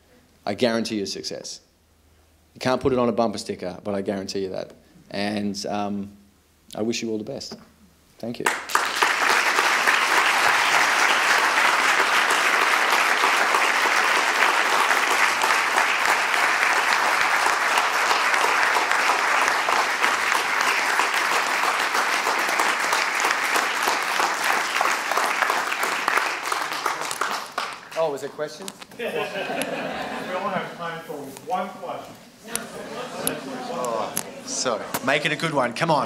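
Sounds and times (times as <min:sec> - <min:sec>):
audience clapping: 0:08.4 - 0:28.5, 0:32.5 - 0:35.2.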